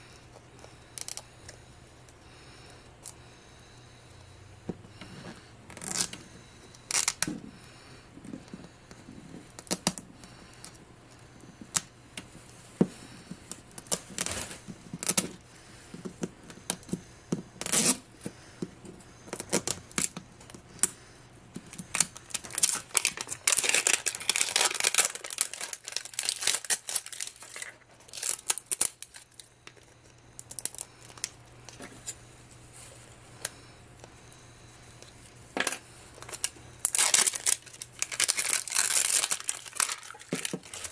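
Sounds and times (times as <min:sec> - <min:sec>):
plastic wrap crinkling and tearing: 0:05.7 - 0:06.2, 0:06.9 - 0:07.3, 0:13.7 - 0:15.4, 0:21.7 - 0:29.5, 0:30.4 - 0:31.4, 0:36.2 - 0:40.9.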